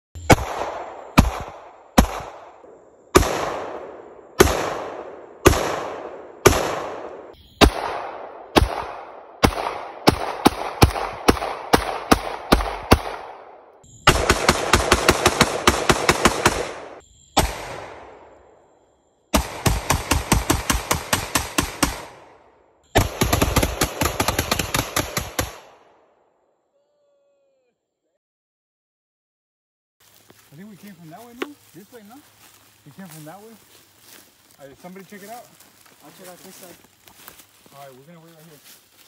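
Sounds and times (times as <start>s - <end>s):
pistol gunshots with echo: 0.2s - 18.3s, 19.3s - 22.4s, 23.0s - 26.0s.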